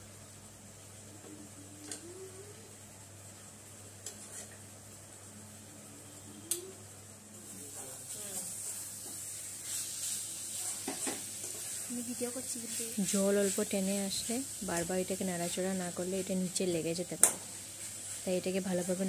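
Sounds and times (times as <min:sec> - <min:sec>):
chicken sizzling in pan: 0:07.3 - 0:19.0
spatula tapping and scraping pan: 0:10.8 - 0:11.7.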